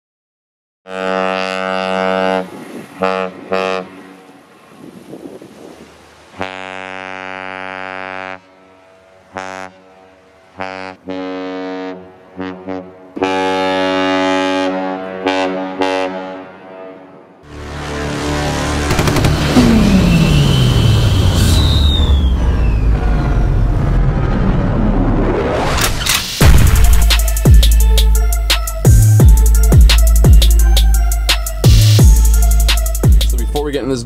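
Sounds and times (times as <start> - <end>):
ship horn blasts: 0.9 - 5.0, 6.1 - 23.5.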